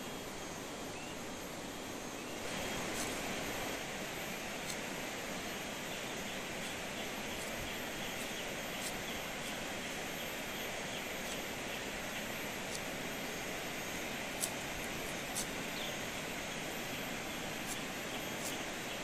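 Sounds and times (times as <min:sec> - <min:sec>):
outdoor background hiss: 0:00.0 - 0:19.0
blade clicking on skin: 0:04.5 - 0:04.9, 0:06.2 - 0:10.3, 0:11.1 - 0:16.2, 0:17.0 - 0:19.0.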